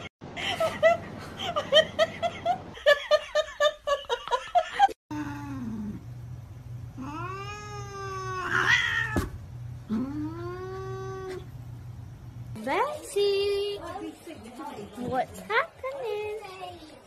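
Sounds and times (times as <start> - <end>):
cat yowling: 7.0 - 9.3.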